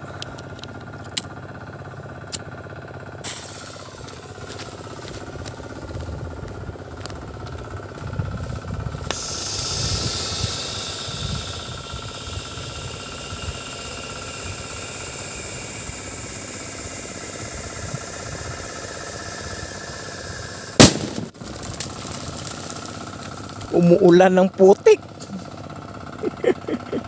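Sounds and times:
firecracker fuse hissing: 3.2s - 25.6s
firecracker bang: 20.8s - 22.5s.

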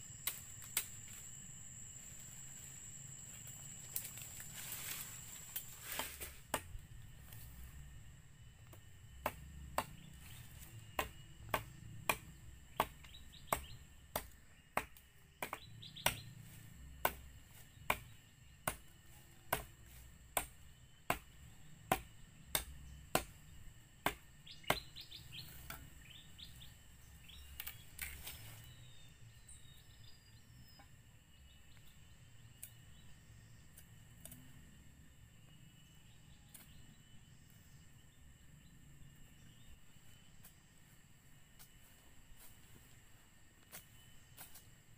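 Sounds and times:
high insect drone: 0.0s - 44.9s
machete chopping bamboo: 5.5s - 6.8s, 8.7s - 16.3s, 17.0s - 25.9s
birds chirping: 9.8s - 16.4s, 24.4s - 33.8s.

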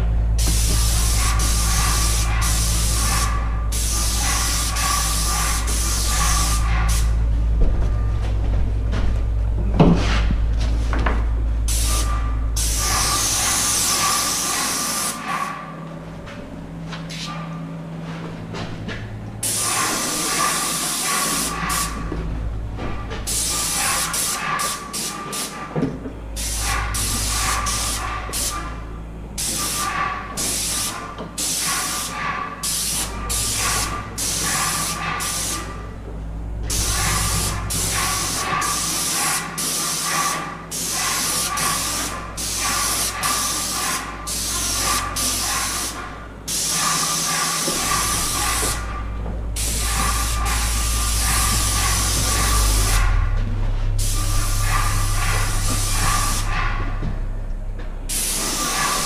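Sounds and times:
steady low hum: 0.0s - 59.0s
paint sprayer hissing bursts: 0.4s - 7.1s, 11.7s - 15.2s, 19.4s - 22.0s, 26.4s - 28.6s, 29.4s - 35.7s, 36.7s - 48.8s, 49.6s - 53.0s, 54.0s - 57.0s, 58.1s - 59.0s.

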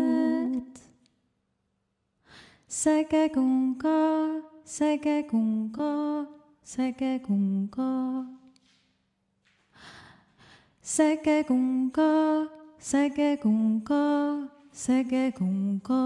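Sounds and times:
person chanting a cappella: 0.0s - 0.8s
person breathing: 2.2s - 2.7s, 9.7s - 10.8s.

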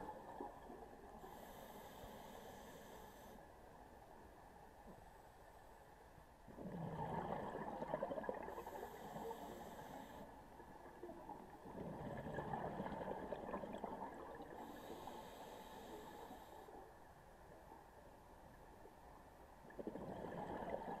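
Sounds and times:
regulator inhale hiss: 1.2s - 3.5s, 8.6s - 10.4s, 14.6s - 16.9s
exhaled bubbles rushing: 6.7s - 8.6s, 11.7s - 14.4s, 19.8s - 21.0s.

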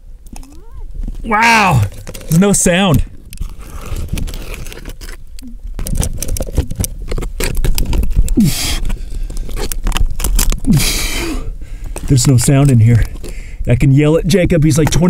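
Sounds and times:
scraping and knocking on rock: 0.3s - 5.2s, 5.8s - 10.6s, 14.2s - 15.0s.

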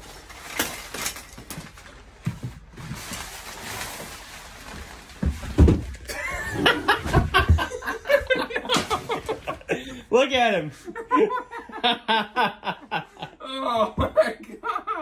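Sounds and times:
knocks and thumps: 5.2s - 6.1s, 7.0s - 7.8s.

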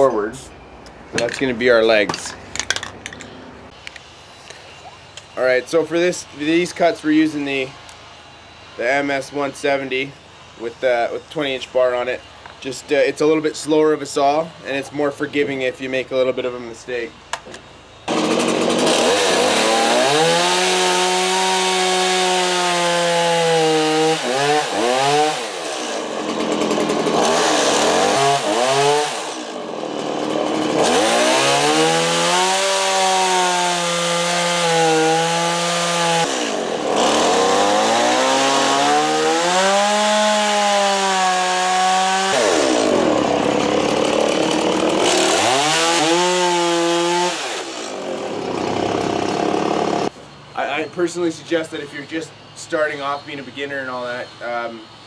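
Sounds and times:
chainsaw cutting wood: 18.1s - 50.1s.

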